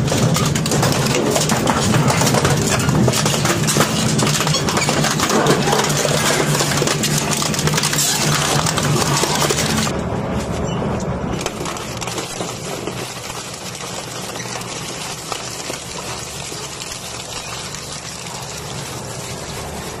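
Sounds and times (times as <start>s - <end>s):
shredder grinding scrap metal: 0.0s - 9.9s.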